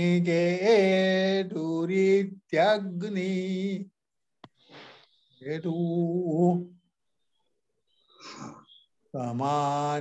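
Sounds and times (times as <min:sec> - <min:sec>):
intake of breath: 0:07.9 - 0:08.9.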